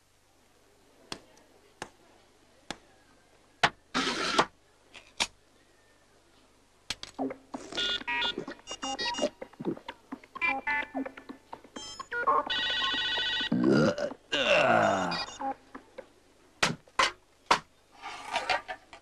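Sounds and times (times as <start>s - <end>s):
electronic beeps: 7.2s - 13.6s, 14.4s - 15.6s.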